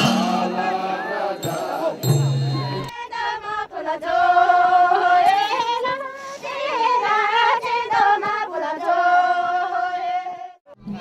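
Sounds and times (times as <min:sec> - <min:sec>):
women singing unaccompanied: 0:00.0 - 0:10.6.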